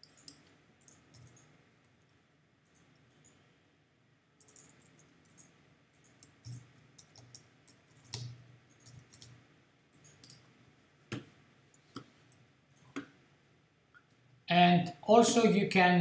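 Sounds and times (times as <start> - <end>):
computer keyboard typing: 0.0 - 1.6, 2.7 - 3.4, 4.4 - 13.2.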